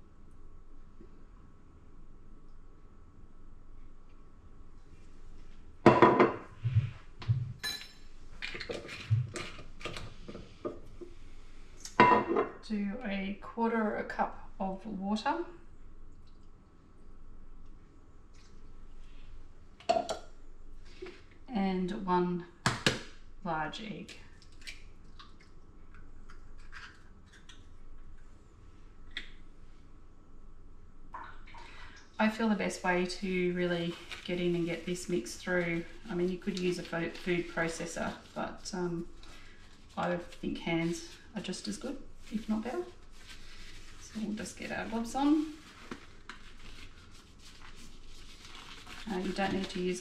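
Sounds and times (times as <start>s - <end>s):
utensil clink with ring: 7.6s - 8.0s.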